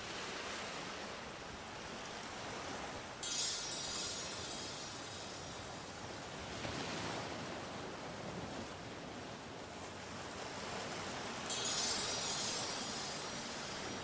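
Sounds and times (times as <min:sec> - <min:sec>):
sea surf rushing: 0:02.5 - 0:08.8, 0:10.8 - 0:14.0.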